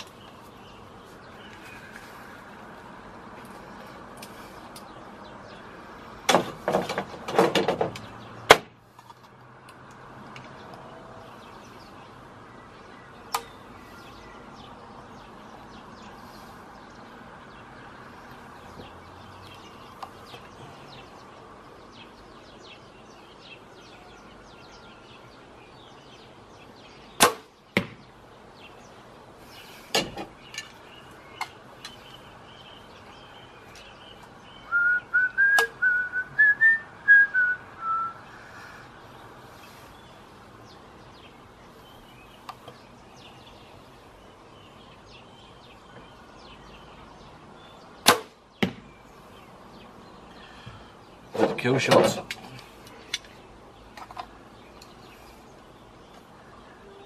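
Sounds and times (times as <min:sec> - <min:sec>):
arrow striking target: 0:27.2 - 0:28.0, 0:48.0 - 0:48.9.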